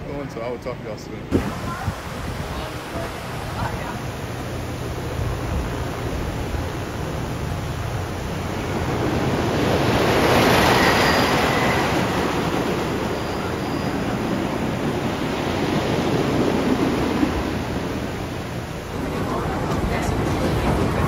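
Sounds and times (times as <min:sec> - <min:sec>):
roller coaster rumbling roar: 0:04.9 - 0:21.0.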